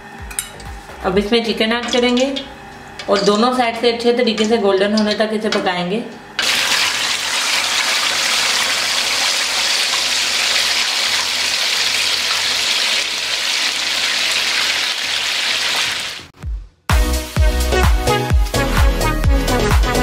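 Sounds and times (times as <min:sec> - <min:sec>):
chicken deep-frying in hot oil: 0:06.4 - 0:16.3.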